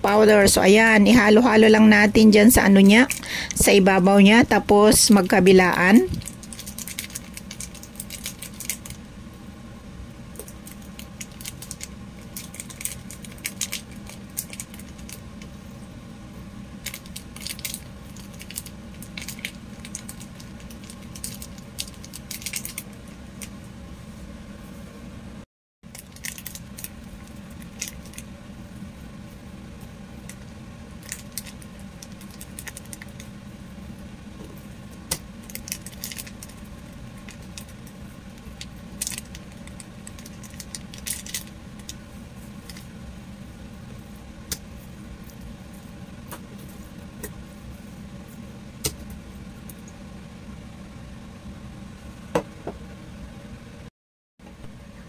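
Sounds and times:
steady low hum: 0.0s - 55.0s
plastic packet crinkling: 6.2s - 9.0s, 10.4s - 15.2s, 16.8s - 22.9s, 25.9s - 26.9s, 35.4s - 36.6s, 39.0s - 42.0s.

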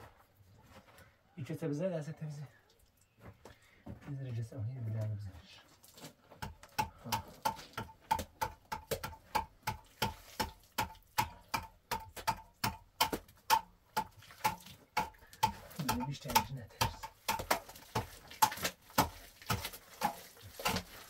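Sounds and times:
hand tool chipping at wall: 6.3s - 21.0s.

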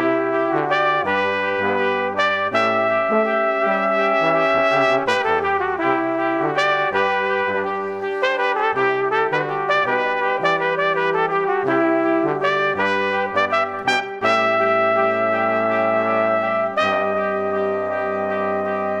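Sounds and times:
instrumental brass music: 0.0s - 19.0s.

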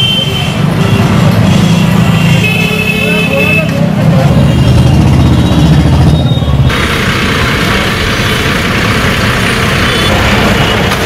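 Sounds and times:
rushing street noise: 0.0s - 11.0s
vehicle engine humming: 3.4s - 11.0s.

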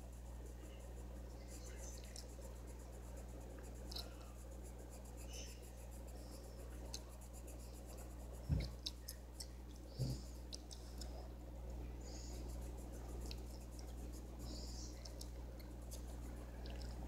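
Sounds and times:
pencil scratching on paper: 0.0s - 8.9s
steady low hum: 0.0s - 17.0s.

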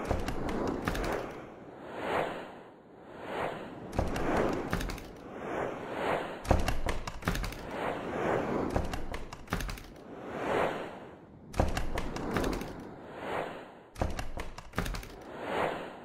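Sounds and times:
sharp clicks and thumps: 0.0s - 1.4s, 3.9s - 5.2s, 6.4s - 7.7s, 8.6s - 10.0s, 11.5s - 12.9s, 14.0s - 15.3s
whooshing swells: 0.0s - 14.0s.

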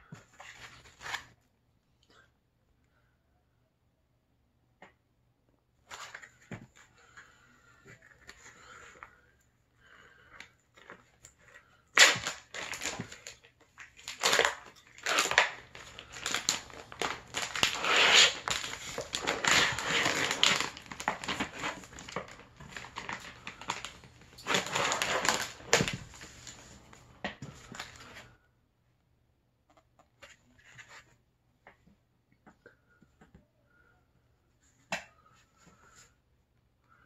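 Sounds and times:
stiff plastic crackling: 11.9s - 27.0s.

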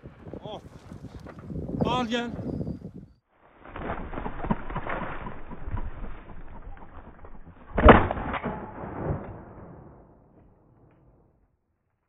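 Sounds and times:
shotgun firing: 7.7s - 10.0s.

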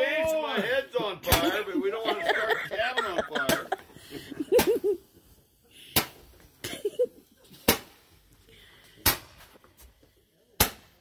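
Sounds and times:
roman candle pops: 5.9s - 6.3s, 7.6s - 8.1s, 9.0s - 9.6s, 10.6s - 11.0s.

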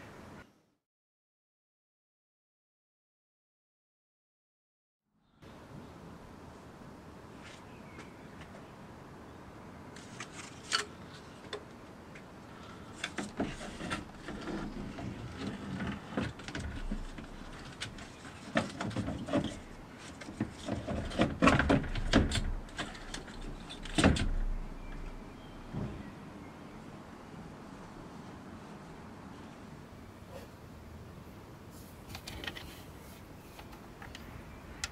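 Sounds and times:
plastic scraping and rubbing: 10.0s - 11.6s, 12.9s - 25.1s.

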